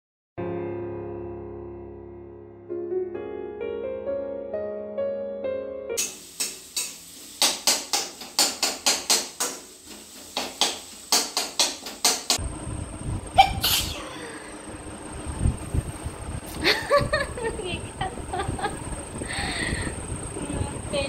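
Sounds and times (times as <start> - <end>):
hissing background: 12.3 - 21.0.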